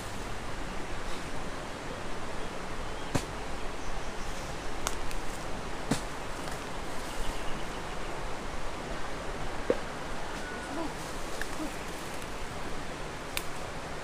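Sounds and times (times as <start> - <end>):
steady outdoor hiss: 0.0 - 14.0
sharp snaps of stems: 5.9 - 6.6, 13.3 - 13.6
pepper bush rustling: 10.6 - 12.4.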